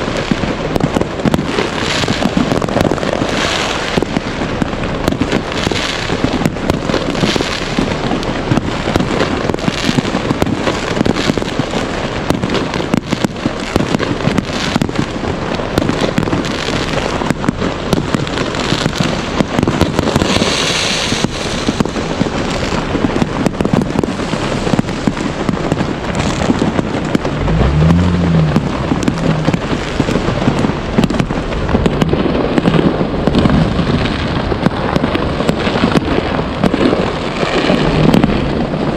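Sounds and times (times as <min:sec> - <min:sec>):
fireworks bangs and crackling: 0:00.0 - 0:38.9
low-pitched bending sound: 0:26.3 - 0:32.1.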